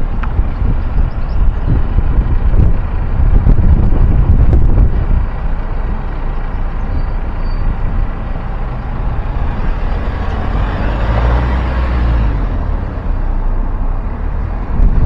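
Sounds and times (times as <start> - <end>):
road traffic rumble: 0.0 - 15.0
vehicle passing: 7.9 - 15.0.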